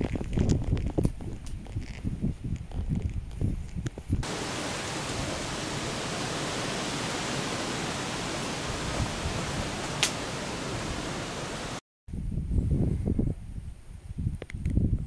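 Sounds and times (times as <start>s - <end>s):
rushing hiss of outdoor noise: 4.2s - 11.8s.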